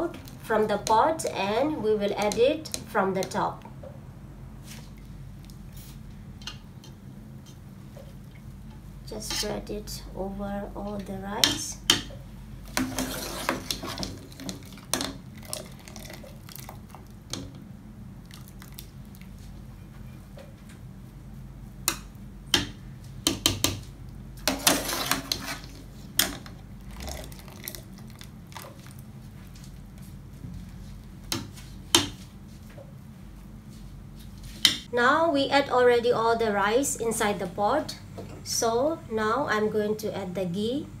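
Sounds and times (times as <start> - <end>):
steady low hum: 0.0 - 41.0.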